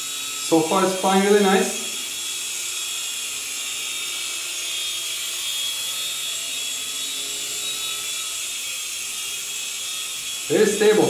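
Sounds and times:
rc helicopter rotors whining: 0.0s - 11.0s.

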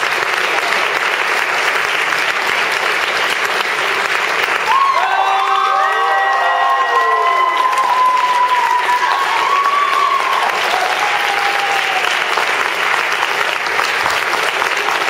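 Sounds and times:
audience clapping: 0.0s - 15.0s
audience cheering: 4.4s - 13.6s.

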